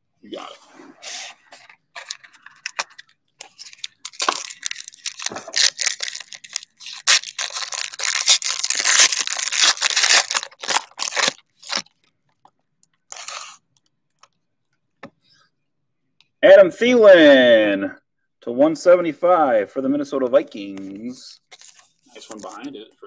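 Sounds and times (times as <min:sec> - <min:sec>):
plastic wrapping tearing and crinkling: 0:01.6 - 0:12.4, 0:13.0 - 0:13.6, 0:21.5 - 0:22.7.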